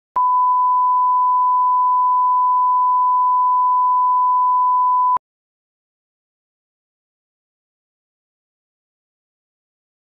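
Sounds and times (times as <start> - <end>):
steady sine-wave tone: 0.2 - 5.2.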